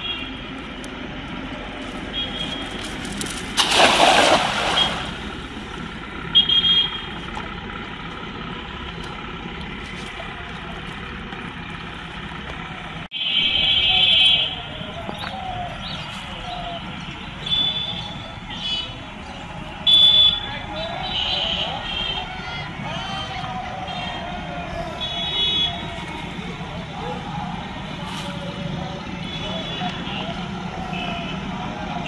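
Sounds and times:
cast net splashing into water: 3.0s - 5.6s.

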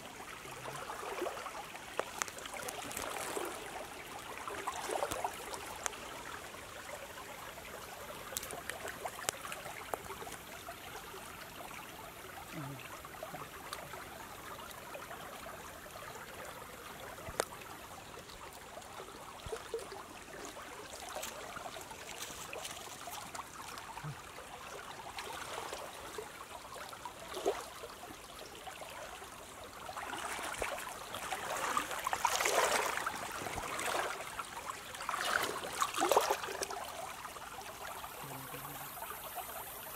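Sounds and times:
stream water running: 0.0s - 39.9s
small ticks and rustles: 0.7s - 28.5s.

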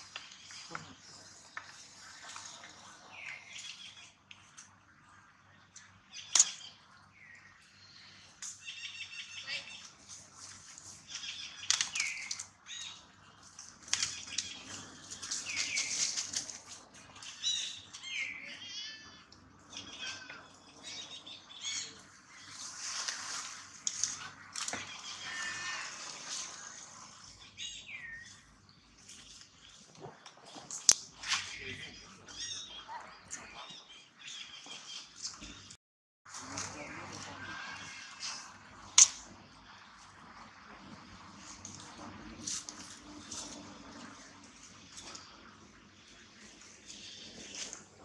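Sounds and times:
rustling noise: 22.4s - 27.2s.

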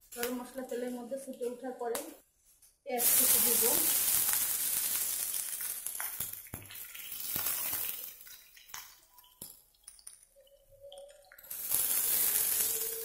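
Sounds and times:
onions sizzling in oil: 2.9s - 8.8s, 11.4s - 13.0s.

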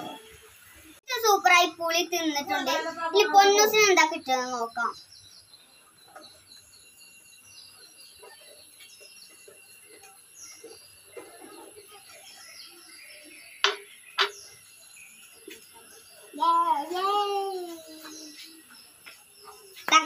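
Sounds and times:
faint bird chirps: 3.2s - 20.0s
faint insect-like tone: 5.0s - 19.8s.

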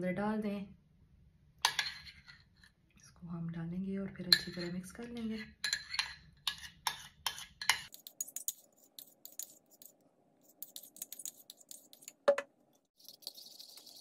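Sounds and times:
spoon clinking and scraping ceramic bowl: 1.6s - 2.8s, 4.3s - 12.2s.

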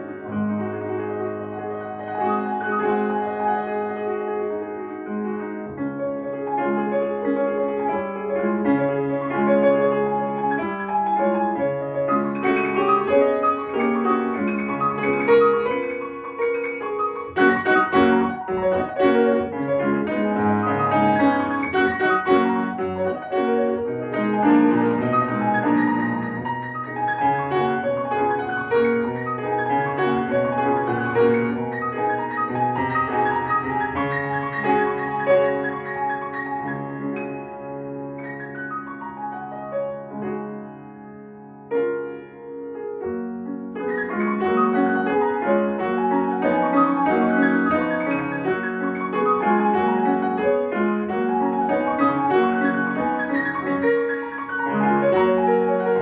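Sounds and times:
classical piano playing: 0.0s - 56.0s.

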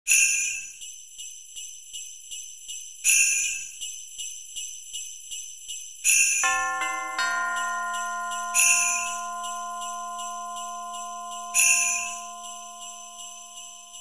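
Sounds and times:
sleigh bells shaken to a beat: 0.1s - 14.0s
sustained chime notes: 6.4s - 14.0s.

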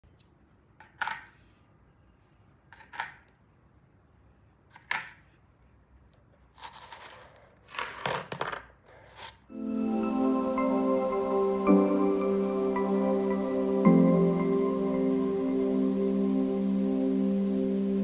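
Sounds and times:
coins sliding into cardboard box: 6.5s - 9.4s
coins clinking on cardboard: 6.6s - 9.2s.

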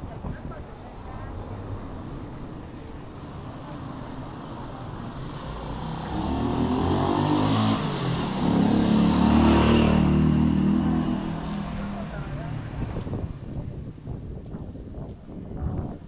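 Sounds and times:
motor vehicle passing: 4.4s - 13.4s.

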